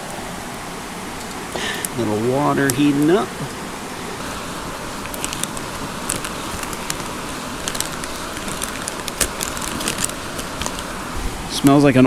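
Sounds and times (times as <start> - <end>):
mountain stream rushing: 0.0 - 12.0
foil pouch crinkling: 4.2 - 11.2.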